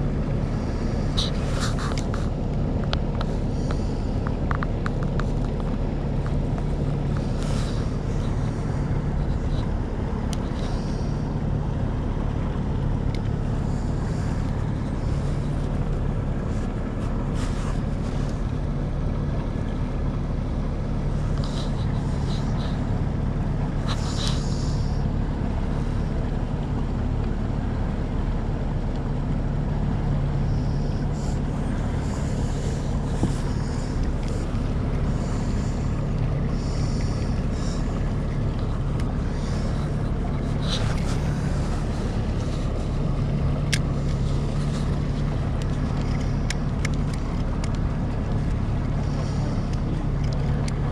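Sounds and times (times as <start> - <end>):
outboard motor humming: 0.0 - 50.9
faint clicks: 1.1 - 11.2, 30.5 - 50.9.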